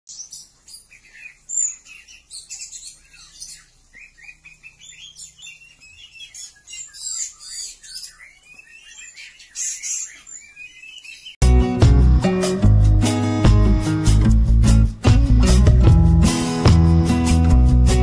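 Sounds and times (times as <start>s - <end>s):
birds chirping and whistling: 0.1s - 11.4s.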